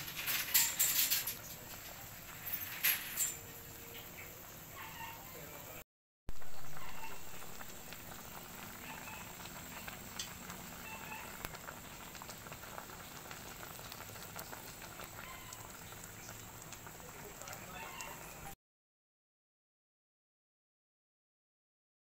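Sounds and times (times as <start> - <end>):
soup boiling and bubbling: 0.0 - 18.6.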